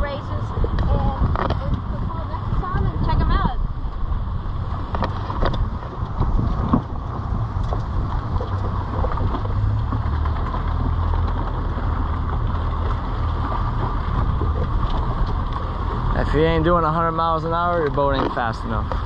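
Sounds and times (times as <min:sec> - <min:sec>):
boat engine running: 0:00.0 - 0:19.0
water rushing along hull: 0:00.0 - 0:19.0
wind on microphone: 0:00.0 - 0:19.0.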